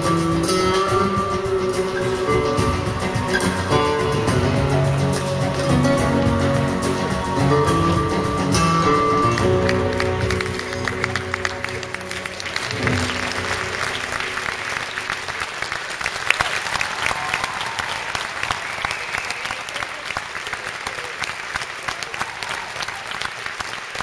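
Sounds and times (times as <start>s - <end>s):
programme music: 0.0s - 15.0s
audience applauding: 0.0s - 24.0s.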